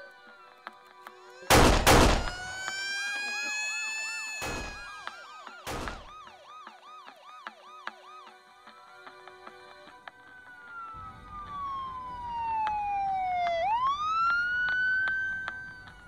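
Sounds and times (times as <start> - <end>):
police siren wailing and yelping: 2.2 - 8.4, 10.6 - 16.0.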